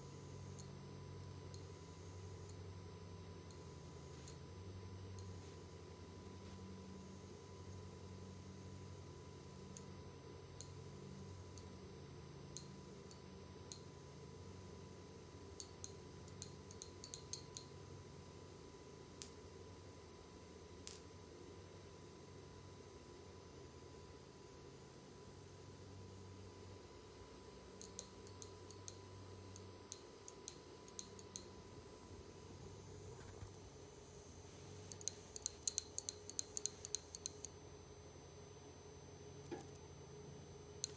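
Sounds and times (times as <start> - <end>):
high-pitched piezo whine: 5.2 - 9.9, 10.6 - 11.7, 12.6 - 37.6.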